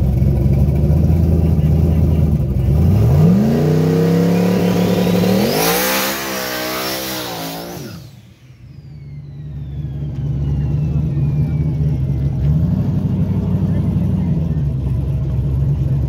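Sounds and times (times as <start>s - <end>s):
car engine idling and revving: 0.0s - 16.0s
tyres spinning in a burnout: 1.9s - 14.3s
thin falling whine: 3.7s - 12.6s.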